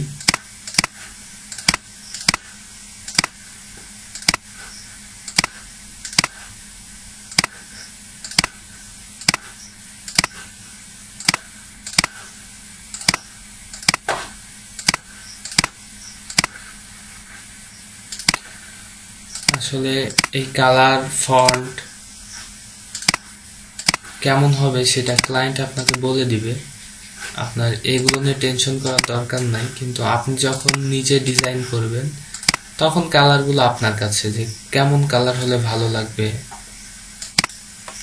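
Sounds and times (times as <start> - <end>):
faint steady hum: 0.0 - 38.0
computer mouse clicking: 0.2 - 2.5, 3.1 - 3.4, 4.2 - 4.5, 5.3 - 6.4, 9.2 - 9.5, 10.1 - 10.4, 11.2 - 12.2, 12.9 - 14.1, 14.8 - 16.6, 18.1 - 18.5, 20.2 - 20.4, 23.0 - 24.1, 32.3 - 32.6, 37.2 - 37.6.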